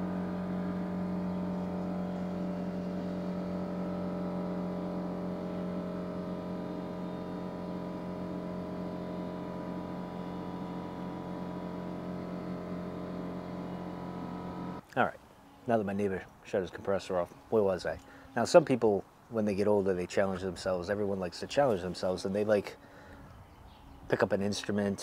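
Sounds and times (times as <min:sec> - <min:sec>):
air compressor running: 0:00.0 - 0:14.8.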